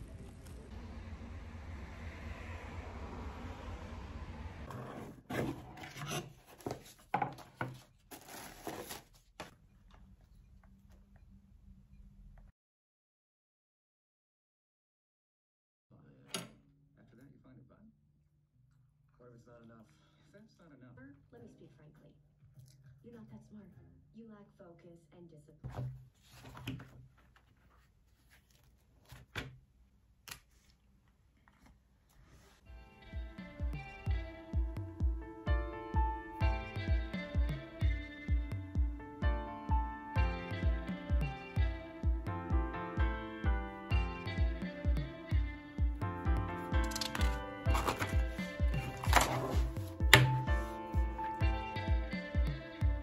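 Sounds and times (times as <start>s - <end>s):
low steady rumble: 0.0s - 4.9s
cardboard box being handled: 5.3s - 9.5s, 46.8s - 50.8s
wrapping paper rustling: 6.4s - 9.6s, 46.8s - 50.8s
notebook knocking on table: 46.8s - 50.8s.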